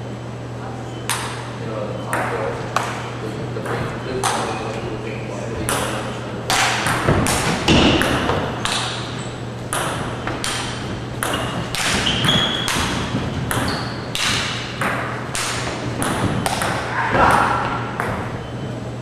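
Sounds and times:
table tennis balls clicking: 5.6s - 18.4s.

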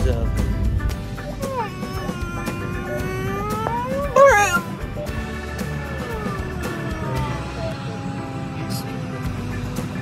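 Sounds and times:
background music with low bass: 0.0s - 10.0s.

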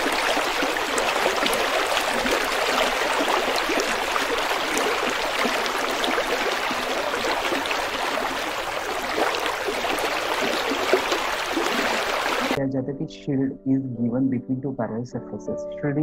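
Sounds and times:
running water: 0.0s - 12.6s.

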